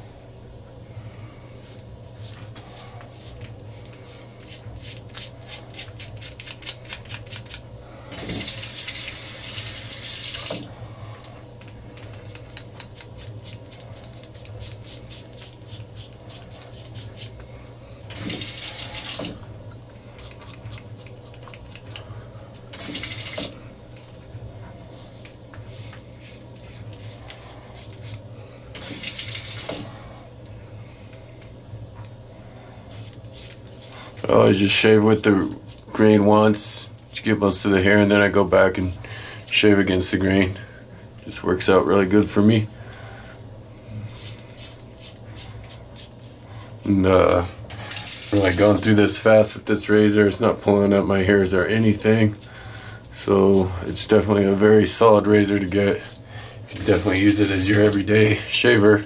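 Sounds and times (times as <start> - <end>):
razor scraping stubble: 3.1 - 7.6, 12.2 - 17.3
water tap running: 8.2 - 10.7, 18.1 - 19.5, 22.7 - 23.6, 28.8 - 30.0, 47.7 - 48.9, 56.7 - 58.1.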